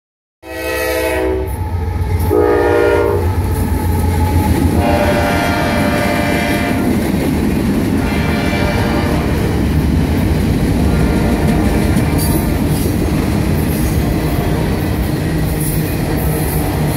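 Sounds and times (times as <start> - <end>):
train air horn blasts: 0.4 - 3.4, 4.7 - 7.0, 8.0 - 9.5, 10.8 - 12.8, 13.9 - 15.1
train wheels on rails: 1.0 - 16.9.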